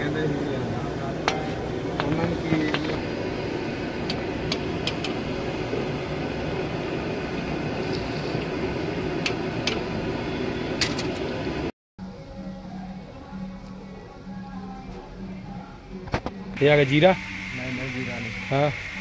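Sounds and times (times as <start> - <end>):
onions sizzling in hot oil: 4.2 - 10.5.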